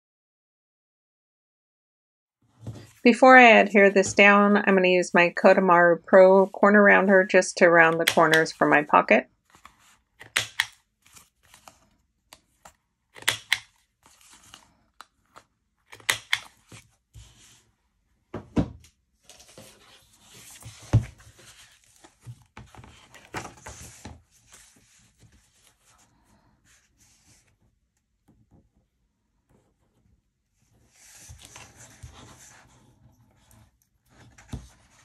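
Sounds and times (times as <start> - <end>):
corner punch clicks: 10.2 - 10.8, 13.2 - 13.7
paper rustling and sliding: 11.0 - 12.8, 13.9 - 15.4, 19.3 - 27.5.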